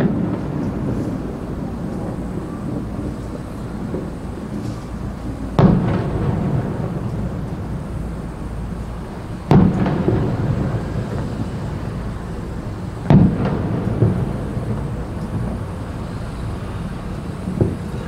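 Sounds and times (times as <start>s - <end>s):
firework booms with rumbling echo: 0.0s - 18.0s
lighter firework bang: 0.0s - 18.0s.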